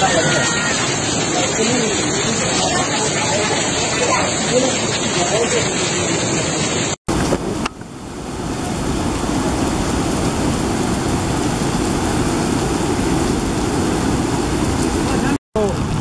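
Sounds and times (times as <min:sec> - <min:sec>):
river torrent rushing: 0:00.0 - 0:16.0.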